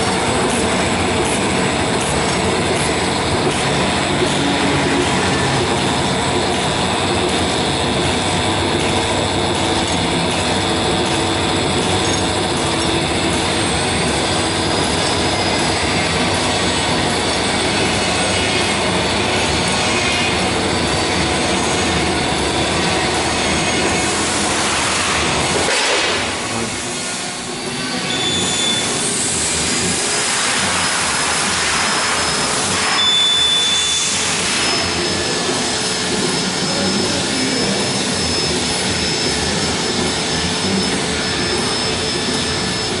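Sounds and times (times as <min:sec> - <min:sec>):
bag sealing machine running: 0:00.0 - 0:43.0
faint high whistles: 0:27.9 - 0:29.1, 0:32.2 - 0:35.4.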